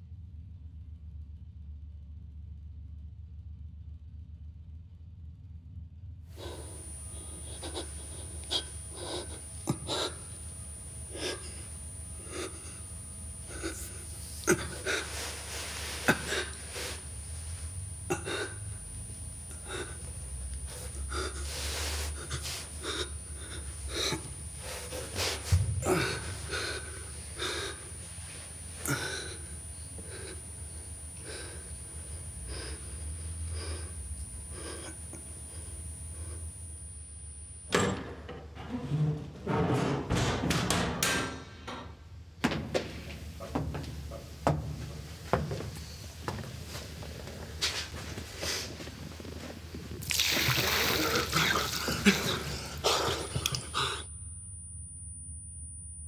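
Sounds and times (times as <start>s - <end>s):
steady low hum: 0.0s - 56.0s
man gasping and breathing: 6.4s - 36.4s.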